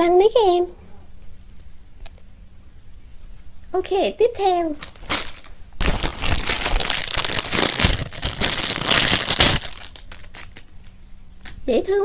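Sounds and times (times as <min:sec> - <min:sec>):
plastic bag crinkling: 0:04.8 - 0:11.6.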